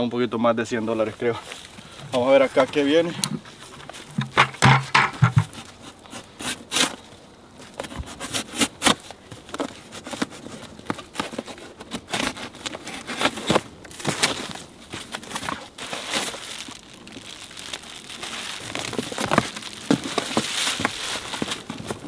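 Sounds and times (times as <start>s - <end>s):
cardboard rustling: 1.5s - 22.0s
knife cutting cardboard box: 4.2s - 7.0s, 7.8s - 16.4s.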